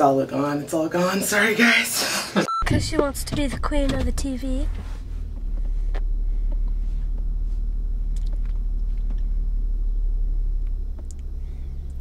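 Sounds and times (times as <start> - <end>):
car engine rumble inside cabin: 2.6 - 12.0.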